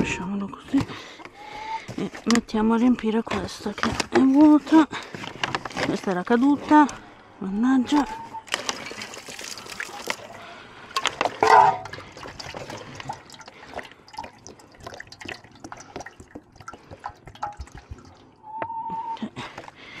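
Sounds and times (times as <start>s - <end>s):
water pouring and splashing: 8.4s - 18.4s.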